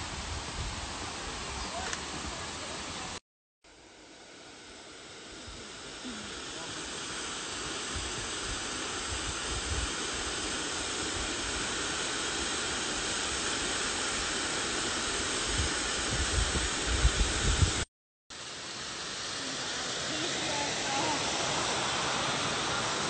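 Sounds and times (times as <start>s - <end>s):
wind rumble on microphone: 0.0s - 2.6s, 9.2s - 10.0s, 15.5s - 17.8s
waterfall rushing hiss: 0.0s - 23.0s.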